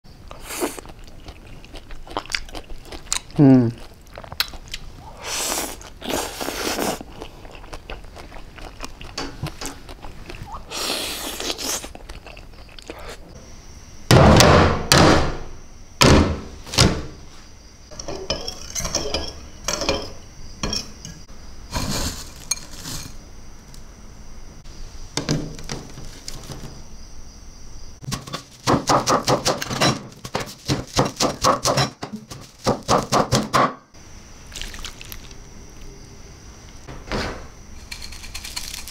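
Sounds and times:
utensils scraping bowls: 17.9s - 23.2s.

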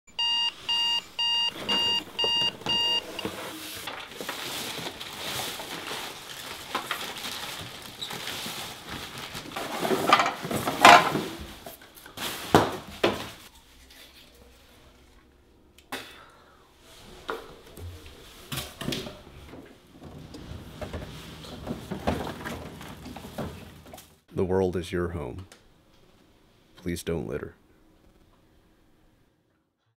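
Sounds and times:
alarm clock beeping: 0.1s - 3.4s.

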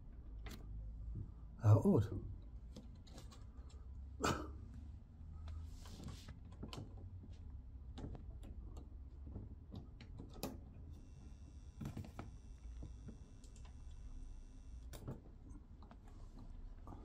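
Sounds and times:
low steady hum: 10.9s - 17.0s
faint high whine: 11.0s - 14.9s.

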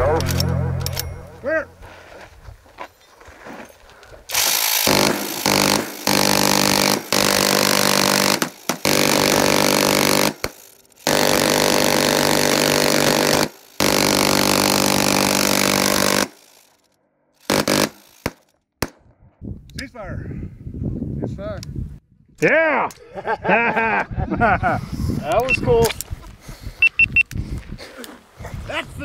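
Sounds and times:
minigun firing bursts: 4.3s - 16.6s, 17.4s - 18.5s.

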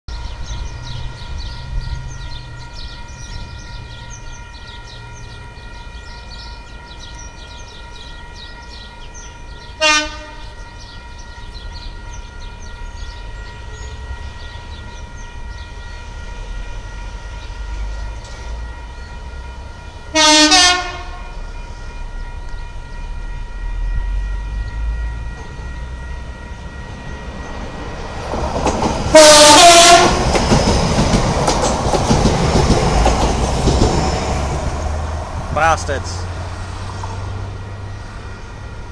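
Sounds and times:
train horn: 2.4s - 27.4s, 29.0s - 30.4s.

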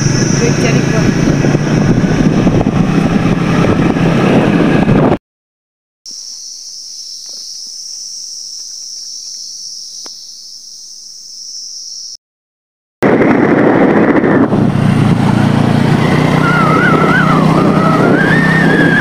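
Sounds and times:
scooter engine: 0.0s - 5.2s, 13.1s - 19.0s
wind rush: 0.0s - 5.2s, 13.0s - 19.0s
high-pitched insect drone: 6.1s - 12.2s.

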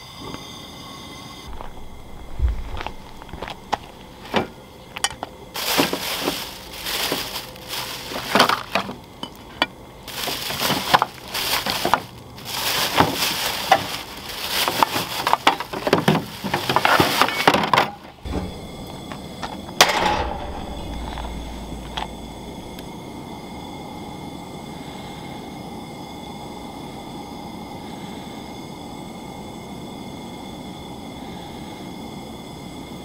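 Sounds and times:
steady low hum: 0.8s - 17.2s, 18.0s - 33.0s
plastic bags and paper rustling: 1.5s - 18.2s
small items clinking: 1.5s - 18.3s.

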